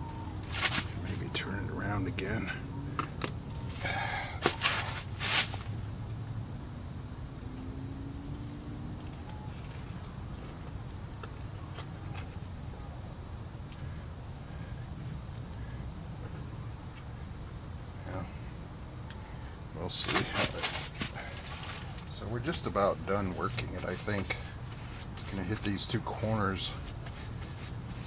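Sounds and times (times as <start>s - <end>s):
crickets chirping: 0.0s - 28.0s.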